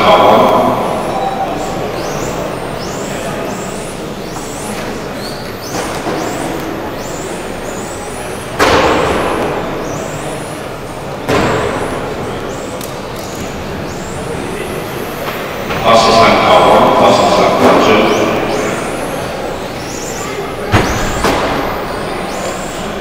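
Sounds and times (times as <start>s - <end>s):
rc car motors whining: 0.1s - 23.0s
loud echoing bangs: 8.5s - 10.6s, 11.2s - 12.7s, 20.6s - 22.7s.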